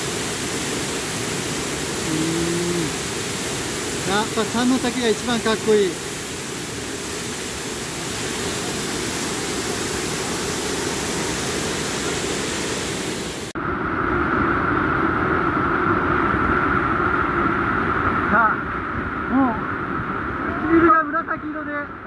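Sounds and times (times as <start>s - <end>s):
waterfall rushing: 0.0s - 13.5s.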